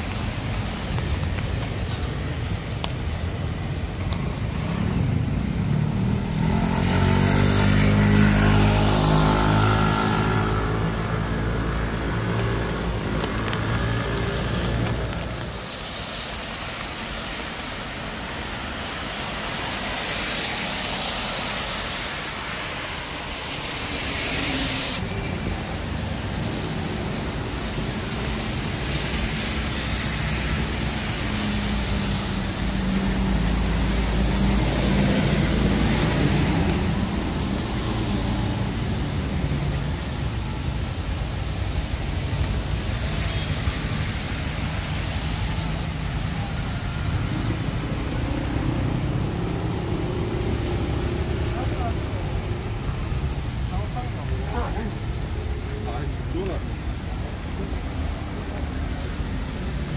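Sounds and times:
vehicle engine hum: 0.0 - 16.2
tyres hissing on wet road: 0.0 - 59.9.

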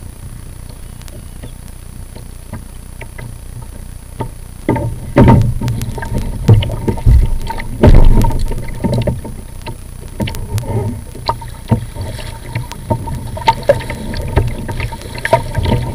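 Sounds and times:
paddle blades dipping: 0.6 - 15.9
water splashing against hull: 1.1 - 15.9
heavy thumps against hull: 4.2 - 9.4.

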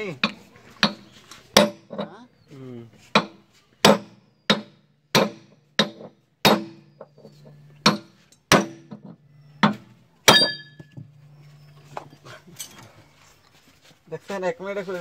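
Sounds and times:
hammer striking metal: 3.2 - 6.9, 7.8 - 9.0, 9.6 - 11.0.

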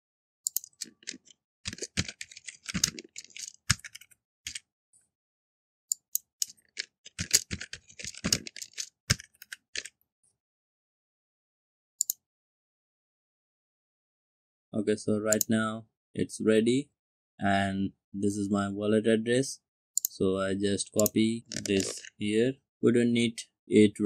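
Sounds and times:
typing on computer keyboard: 0.5 - 4.6, 5.9 - 9.9, 21.0 - 22.1.

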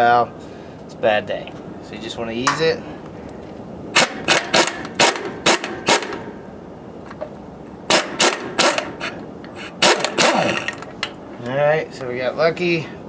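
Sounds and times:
impact wrench hammering: 2.5 - 2.7, 4.0 - 6.2.

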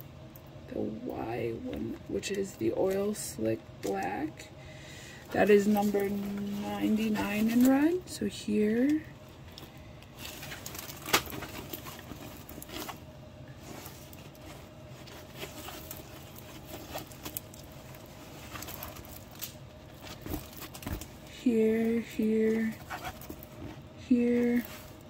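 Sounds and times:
plastic canvas rustling and clicking: 5.3 - 8.0, 8.8 - 25.0
sharp crackle: 13.7 - 21.3.

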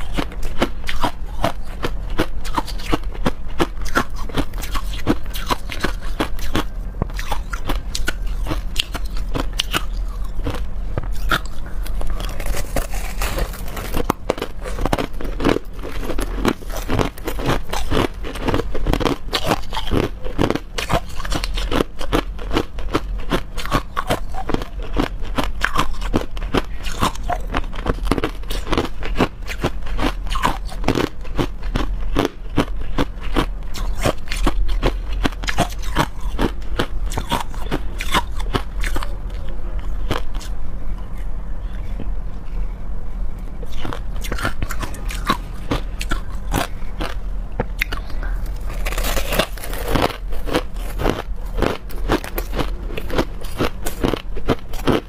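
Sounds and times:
crushed ice crunching: 11.3 - 18.6, 48.5 - 54.2.

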